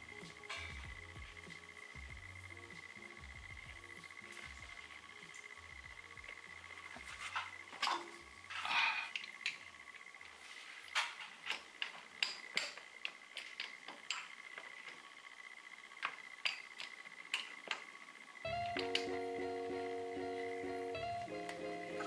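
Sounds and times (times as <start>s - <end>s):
music: 0.0s - 8.4s, 18.4s - 22.0s.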